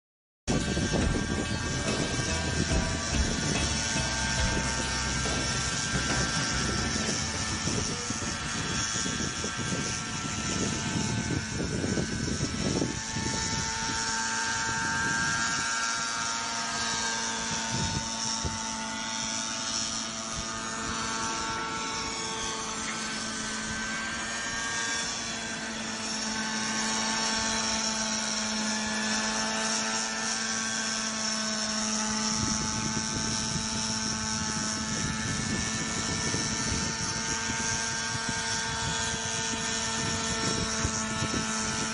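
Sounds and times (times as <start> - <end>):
low rumble: 0.5 - 8.4
model helicopter engine whine: 0.5 - 41.9.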